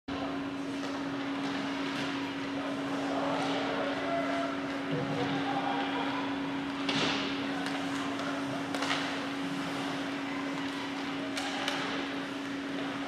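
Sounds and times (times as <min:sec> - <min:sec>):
mechanical hum: 0:00.1 - 0:13.0.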